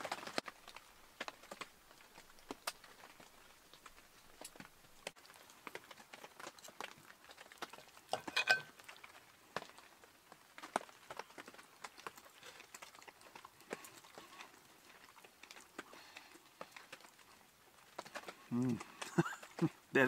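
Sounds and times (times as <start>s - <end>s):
metal clinking on china: 8.1s - 8.7s
cutlery scraping a plate: 8.2s - 8.7s.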